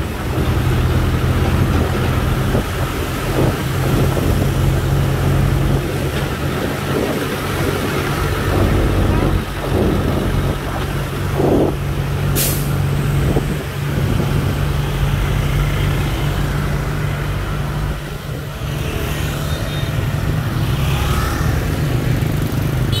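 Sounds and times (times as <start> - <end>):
vehicle engines in traffic: 0.0 - 23.0
short sharp hiss: 12.4 - 12.8.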